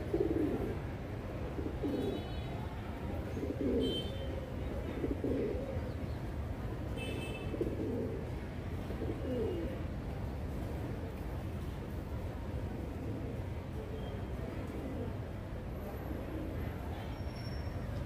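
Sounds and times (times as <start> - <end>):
pigeons cooing: 0.0 - 0.8, 1.5 - 2.3, 3.2 - 4.0, 4.8 - 6.0, 7.6 - 9.8.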